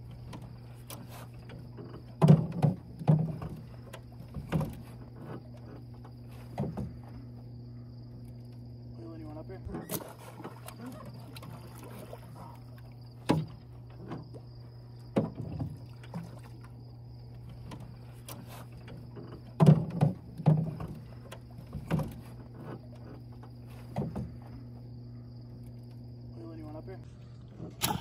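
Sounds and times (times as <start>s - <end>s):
crickets chirring: 0.0s - 28.0s
knocks on aluminium boat: 2.1s - 4.9s, 19.3s - 22.2s
low hum: 2.8s - 28.0s.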